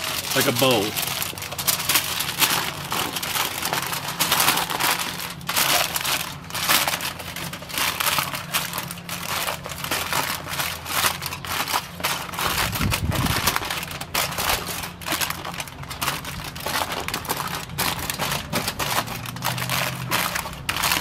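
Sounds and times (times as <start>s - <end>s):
aluminium foil crinkling: 0.0s - 21.0s.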